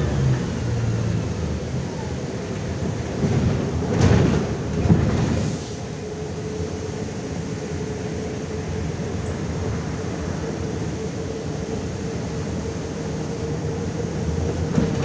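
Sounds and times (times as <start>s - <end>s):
bus engine and road drone: 0.0s - 15.0s
knocks and clatter: 3.2s - 5.3s.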